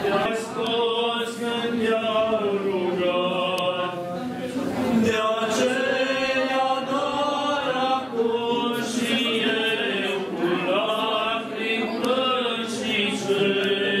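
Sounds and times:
several voices chanting: 0:05.0 - 0:14.0.

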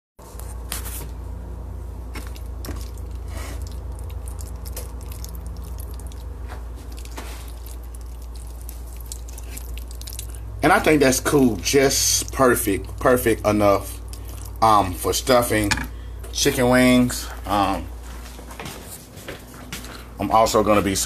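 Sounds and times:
steady low hum: 0:00.2 - 0:21.0
spoon stirring thick food: 0:02.1 - 0:15.4.

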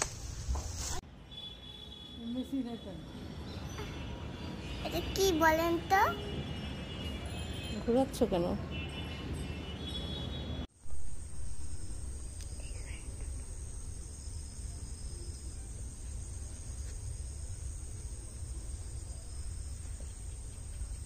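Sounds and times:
crickets chirring: 0:10.8 - 0:21.0
faint chirp: 0:11.2 - 0:21.0.

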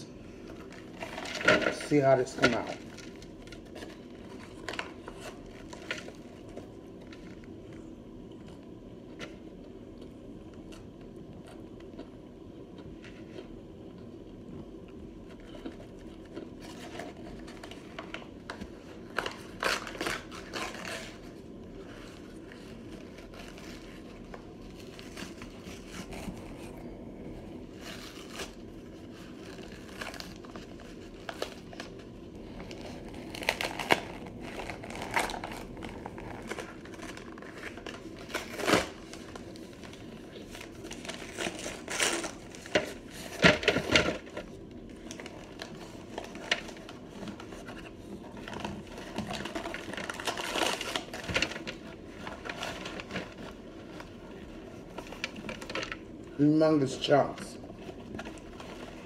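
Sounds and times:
paper bag crinkling: 0:00.4 - 0:07.4, 0:27.6 - 0:59.0.

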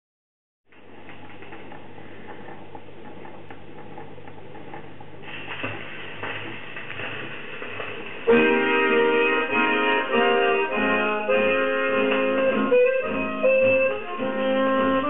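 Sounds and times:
accordion music from old record: 0:08.3 - 0:15.0.

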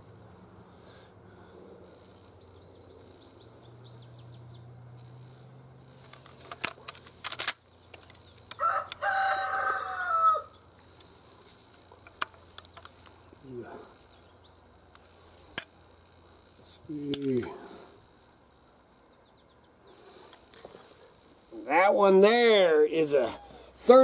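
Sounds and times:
small birds chirping: 0:00.0 - 0:06.0, 0:07.6 - 0:08.9, 0:09.7 - 0:21.8
rooster crowing: 0:08.6 - 0:10.6.

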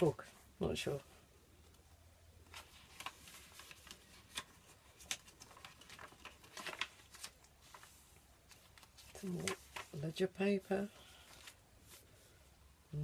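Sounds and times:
paper pages rustling: 0:02.4 - 0:10.4, 0:11.0 - 0:12.4.

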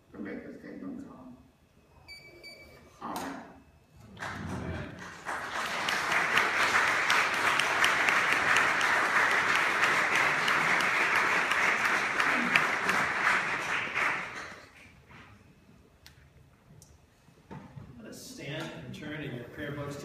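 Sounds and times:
congregation applauding: 0:04.1 - 0:15.0.

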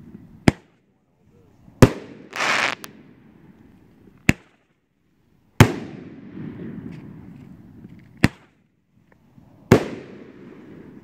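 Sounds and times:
short firework hiss: 0:02.3 - 0:02.9.

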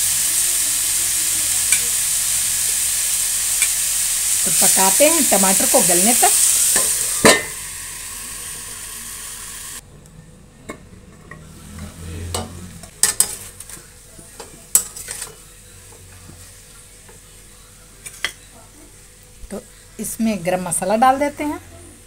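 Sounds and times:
vegetables sizzling in oil: 0:00.0 - 0:09.8.

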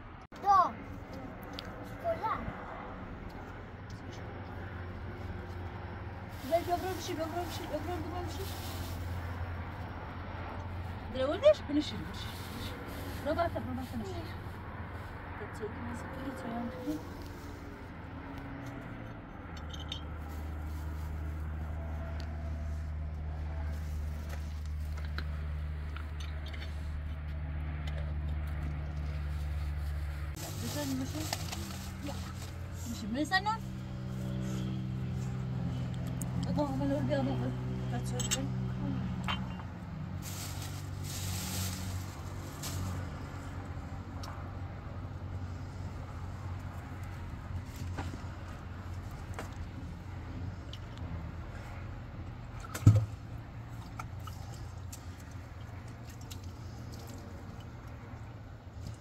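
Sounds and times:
plastic bag rustling: 0:06.3 - 0:09.5, 0:29.7 - 0:33.0, 0:40.2 - 0:43.3.

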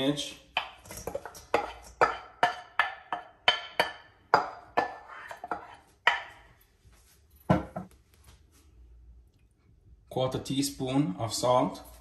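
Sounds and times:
utensil knocking against bowl: 0:00.6 - 0:06.4.

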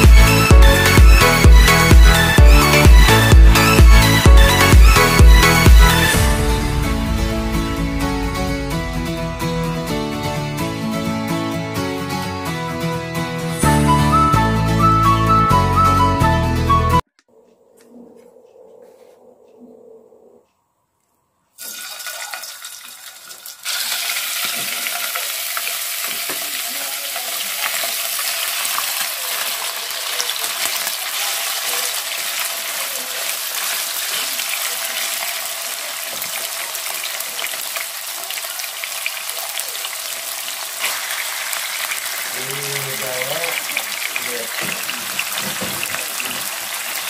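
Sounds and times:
pork sizzling in hot oil: 0:21.6 - 0:47.0.

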